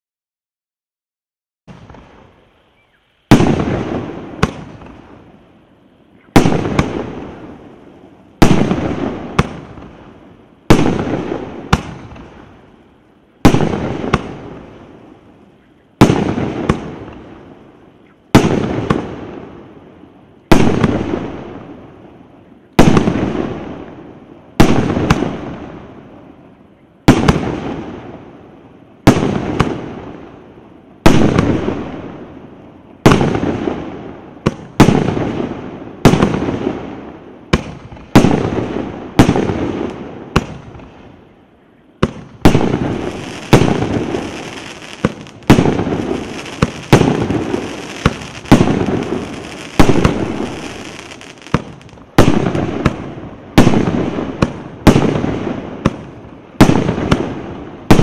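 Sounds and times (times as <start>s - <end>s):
crackling firework trails: 1.7s - 58.0s
firework shells bursting: 42.1s - 55.1s.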